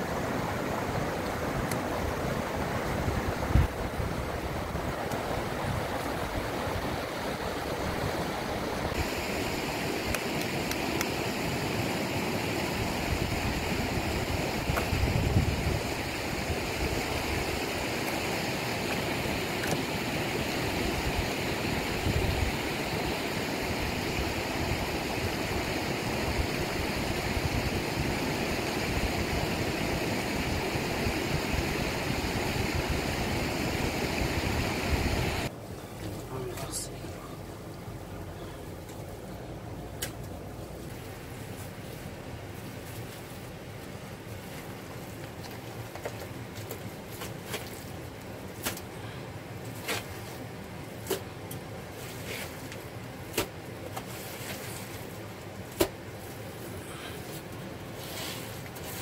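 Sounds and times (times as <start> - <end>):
river rushing: 0.0 - 35.5.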